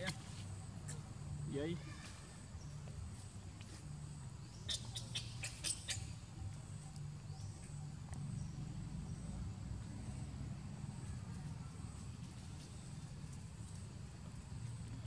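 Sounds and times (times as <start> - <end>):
steady low hum: 0.0 - 15.0
monkey squeaking: 4.6 - 6.5.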